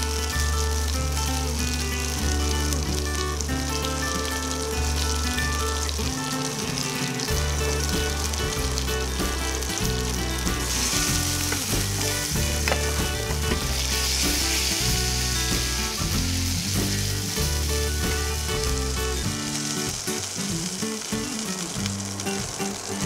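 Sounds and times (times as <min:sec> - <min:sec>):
background music with bass: 0:00.0 - 0:23.0
oil sizzling in a frying pan: 0:00.0 - 0:23.0
spatula stirring: 0:10.6 - 0:19.1.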